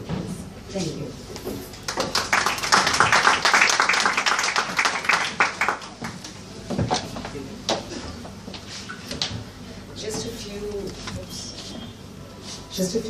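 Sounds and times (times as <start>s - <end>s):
audience applause: 1.9s - 6.1s.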